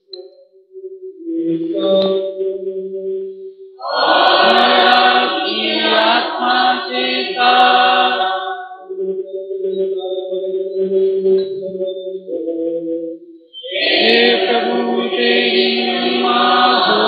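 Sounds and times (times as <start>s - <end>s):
group singing a hymn: 3.8s - 8.8s, 13.6s - 17.0s.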